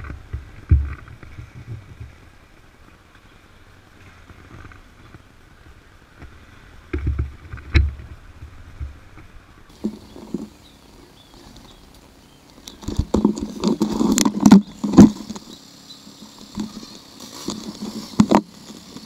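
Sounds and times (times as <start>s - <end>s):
camera handling rubbing: 12.6s - 15.6s, 16.2s - 19.0s.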